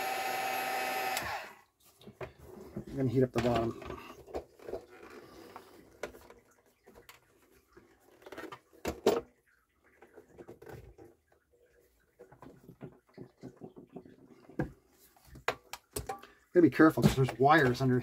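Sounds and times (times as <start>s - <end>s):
handling clicks and knocks: 2.0s - 5.2s, 12.2s - 18.0s.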